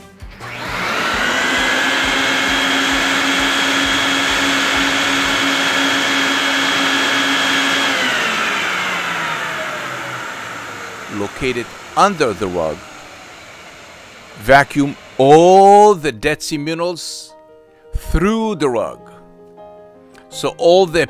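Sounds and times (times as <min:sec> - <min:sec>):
vacuum motor whining: 0:00.2 - 0:15.9.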